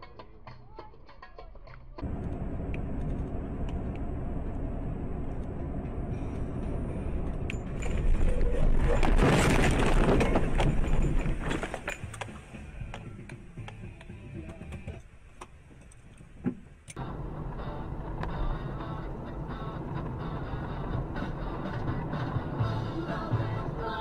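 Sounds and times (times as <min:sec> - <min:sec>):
road noise: 0:01.6 - 0:24.0
rough clattering and rumbling: 0:02.0 - 0:12.6
truck engine: 0:02.0 - 0:13.7, 0:16.9 - 0:24.0.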